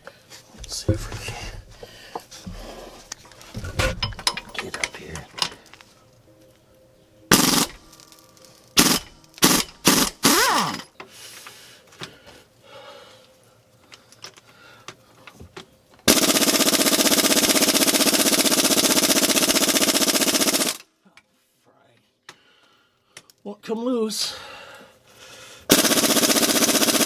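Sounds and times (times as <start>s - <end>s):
air impact gun: 7.3s - 7.8s, 8.8s - 10.8s, 16.1s - 20.8s, 25.7s - 27.0s
impact gun hammering on nut: 8.8s - 10.8s.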